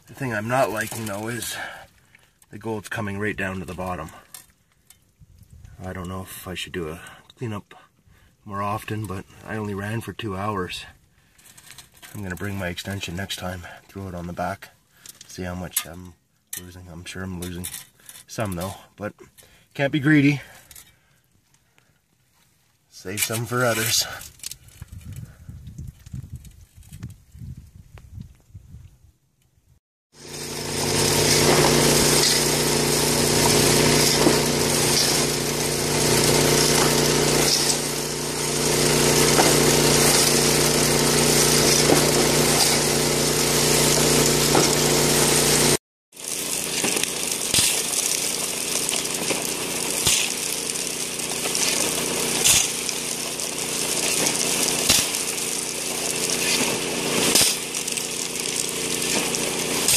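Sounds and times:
water gushing and splashing: 0:30.2 - 0:59.9
water pump engine running: 0:30.2 - 0:59.9
water rushing through sluice: 0:30.2 - 0:59.9.

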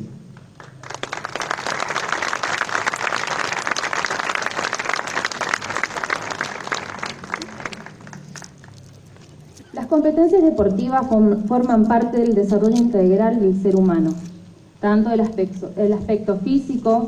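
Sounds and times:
audience applauding: 0:00.4 - 0:09.0.

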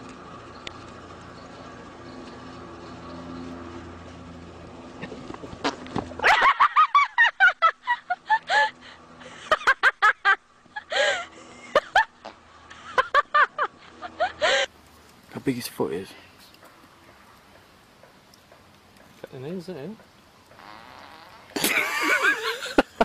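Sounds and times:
horse farting: 0:20.5 - 0:21.8.

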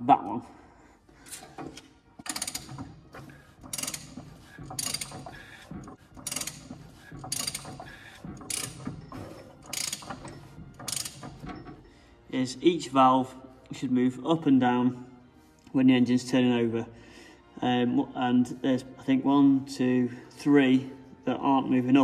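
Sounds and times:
ratchet wrench clicking: 0:02.2 - 0:03.0, 0:03.6 - 0:09.0, 0:09.6 - 0:11.4.

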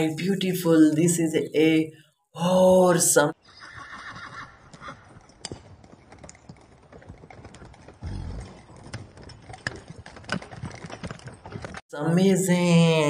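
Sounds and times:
horse hoofbeats on sand: 0:04.6 - 0:11.8.

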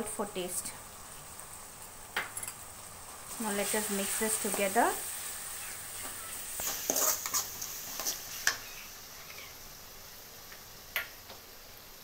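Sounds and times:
oil sizzling: 0:00.0 - 0:12.0
metal ladle scraping a pan: 0:05.6 - 0:09.6.

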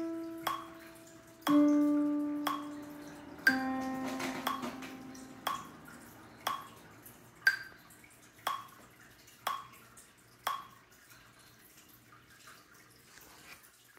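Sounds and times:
metronome ticking: 0:00.0 - 0:07.8, 0:08.4 - 0:08.8, 0:09.4 - 0:09.8, 0:10.4 - 0:10.7.

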